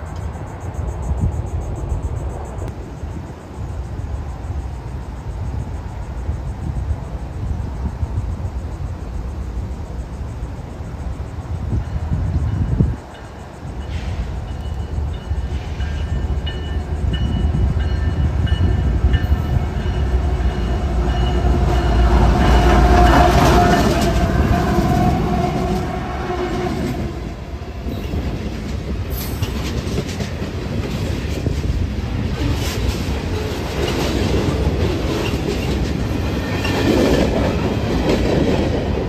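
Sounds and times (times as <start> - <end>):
diesel locomotive rumble: 0.0 - 39.0
train wheel clatter on rails: 11.5 - 39.0
crossing warning bell: 11.8 - 26.0.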